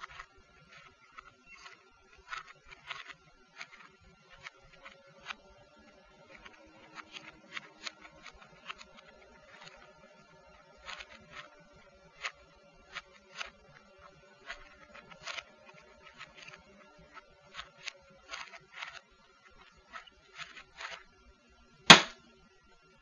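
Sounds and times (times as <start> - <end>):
puzzle cube clicking as twisted: 0.0 - 5.4, 6.3 - 9.8, 10.8 - 11.5, 14.4 - 19.0, 19.9 - 21.0
cube knocking on desk: 21.9 - 22.2.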